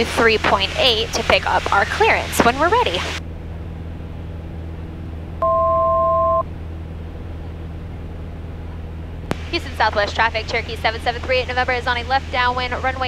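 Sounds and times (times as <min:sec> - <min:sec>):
aircraft piston engine drone: 0:00.0 - 0:05.4, 0:06.4 - 0:13.0
two-tone electronic beep: 0:05.4 - 0:06.5.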